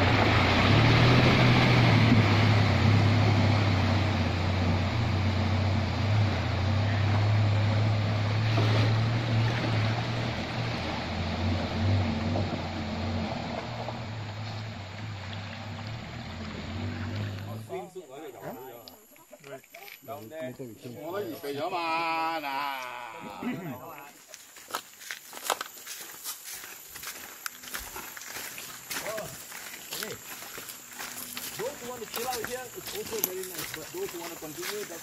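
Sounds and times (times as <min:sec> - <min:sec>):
water splashing and surging: 0:00.0 - 0:17.4
vehicle engine running: 0:00.0 - 0:17.8, 0:26.8 - 0:35.0.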